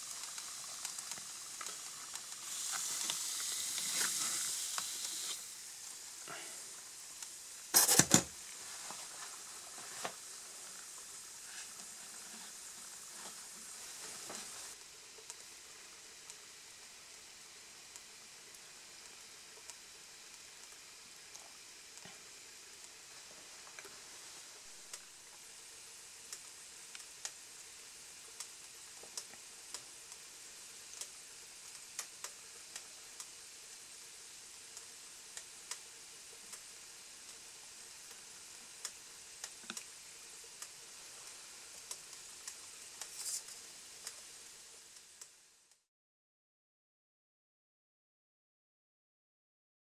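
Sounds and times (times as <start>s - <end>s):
liquid nitrogen boiling hiss: 0.0s - 45.9s
light ticks: 26.3s - 27.4s, 28.4s - 30.2s, 38.8s - 39.9s, 40.6s - 44.3s.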